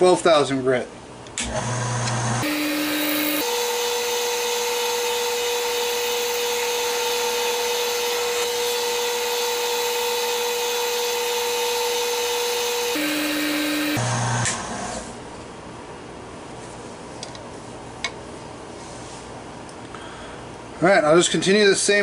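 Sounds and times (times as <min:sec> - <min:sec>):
lathe whining: 0:01.4 - 0:15.0.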